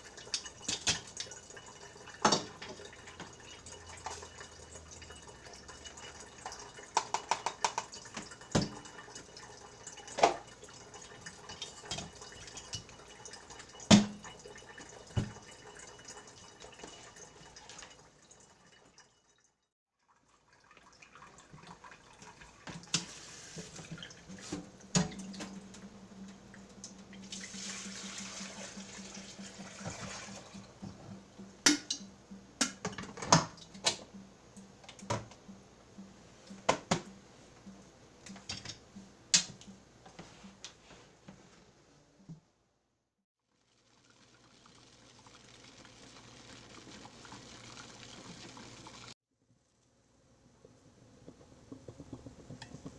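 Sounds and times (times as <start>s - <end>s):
faucet running into sink: 26.5s - 31.0s, 44.0s - 49.2s.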